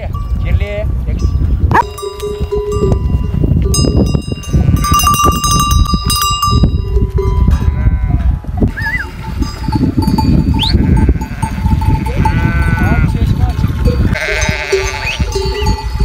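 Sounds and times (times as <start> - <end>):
animal bells clanging: 0.0 - 8.4, 9.0 - 16.0
sheep bleating: 7.7 - 9.4, 10.7 - 13.2, 14.0 - 15.4.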